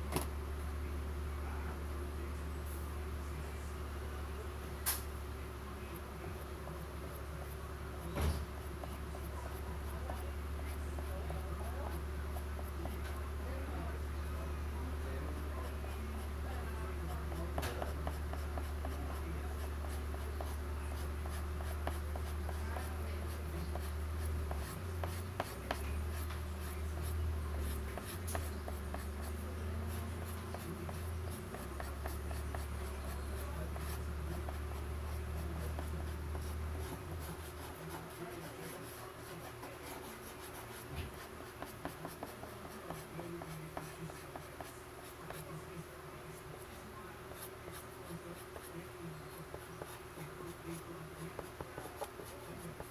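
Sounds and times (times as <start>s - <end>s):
low steady hum: 0.0s - 52.9s
pastel scratching on paper: 17.1s - 45.6s, 46.4s - 52.9s.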